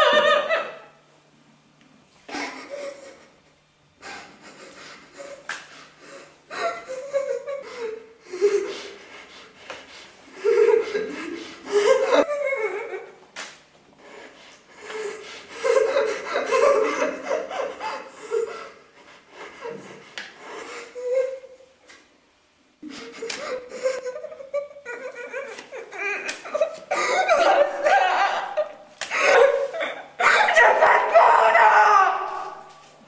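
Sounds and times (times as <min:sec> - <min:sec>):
laughter: 0:00.0 - 0:01.0, 0:02.3 - 0:03.4, 0:04.0 - 0:05.5, 0:06.5 - 0:08.8, 0:10.4 - 0:13.2, 0:15.5 - 0:18.7, 0:22.9 - 0:30.6.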